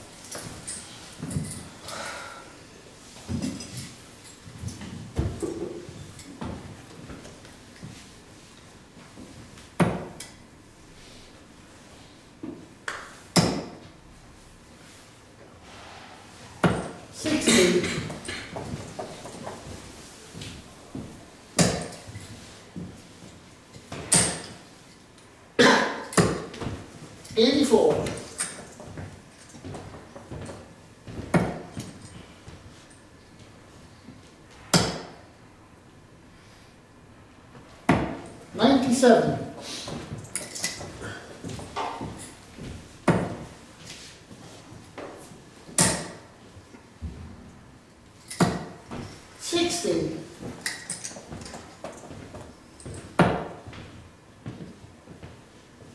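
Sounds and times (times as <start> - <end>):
darts thudding into dartboard: 21.6 - 22.0, 34.8 - 35.2, 45.8 - 46.2.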